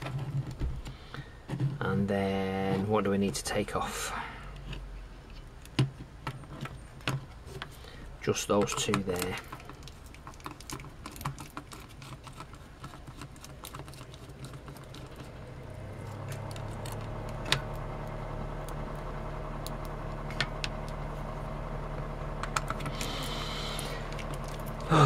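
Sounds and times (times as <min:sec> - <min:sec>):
room heater humming: 0:00.0 - 0:25.0
plastic parts and screws clicking: 0:04.6 - 0:19.0, 0:22.4 - 0:24.9.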